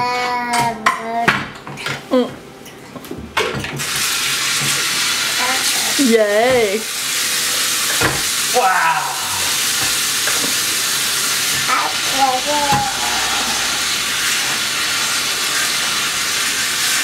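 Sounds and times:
food frying sizzle: 3.6s - 17.0s
person calling out: 8.5s - 9.6s, 12.1s - 13.9s.

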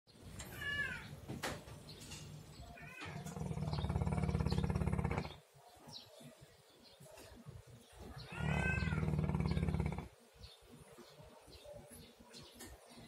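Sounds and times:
dog snoring: 3.2s - 5.4s, 8.4s - 10.2s.

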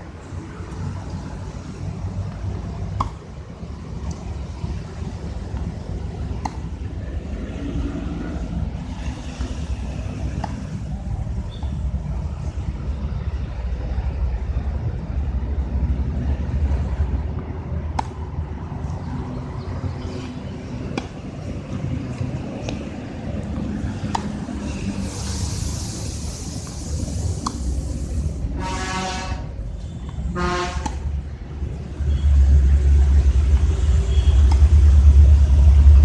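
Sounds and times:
tennis ball struck: 2.9s - 3.3s, 6.3s - 6.8s, 10.4s - 10.6s, 17.9s - 18.2s, 20.8s - 21.3s, 23.4s - 24.4s, 30.8s - 31.1s.

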